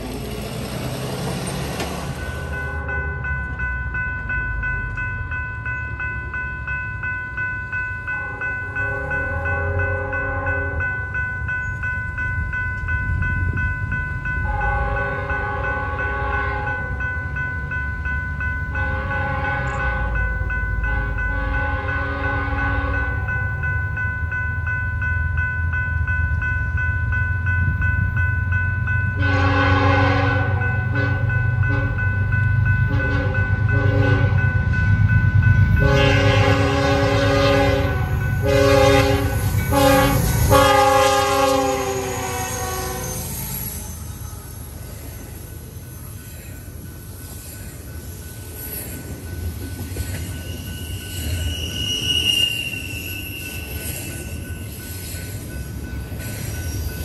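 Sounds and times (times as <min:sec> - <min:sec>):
diesel locomotive rumble: 0:00.0 - 0:57.0
train horn blasts: 0:08.2 - 0:10.9, 0:14.4 - 0:16.9, 0:18.8 - 0:20.2, 0:20.9 - 0:23.2, 0:29.2 - 0:32.1, 0:32.9 - 0:34.4, 0:35.8 - 0:43.3.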